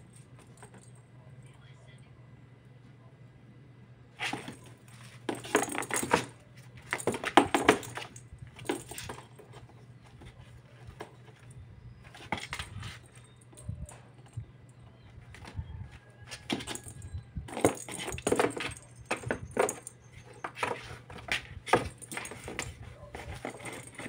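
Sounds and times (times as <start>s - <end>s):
jingle-bell ball rattling: 5.3s - 9.6s, 16.5s - 20.7s, 21.7s - 24.0s.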